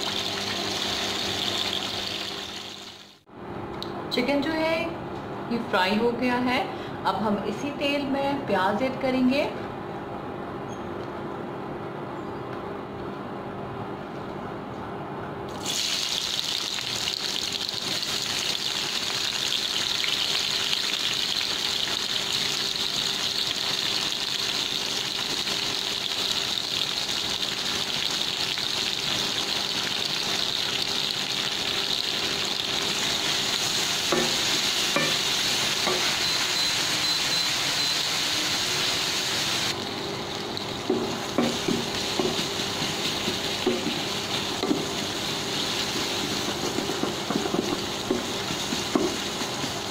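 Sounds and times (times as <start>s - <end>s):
onions sizzling in hot oil: 0.0s - 3.2s, 15.5s - 49.9s
wooden spatula knocking against pan: 40.9s - 42.5s, 43.3s - 44.0s, 46.6s - 49.2s.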